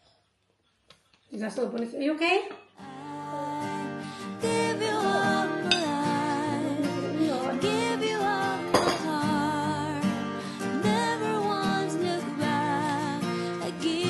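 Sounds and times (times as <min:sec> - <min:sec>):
acoustic guitar: 0:02.6 - 0:14.0
person singing: 0:02.8 - 0:14.0.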